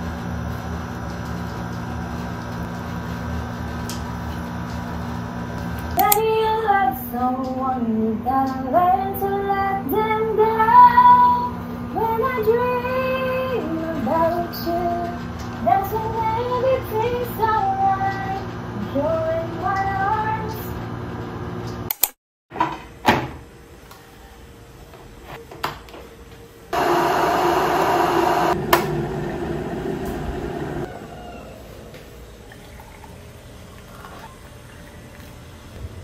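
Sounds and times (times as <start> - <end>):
person singing: 6.0 - 20.7
electric kettle heating water: 26.8 - 30.9.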